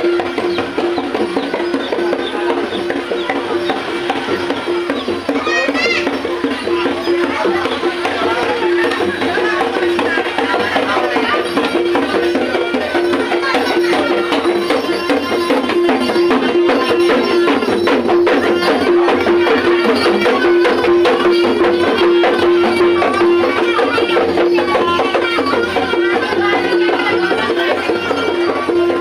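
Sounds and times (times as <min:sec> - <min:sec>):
quick percussion strikes: 0:00.0 - 0:29.0.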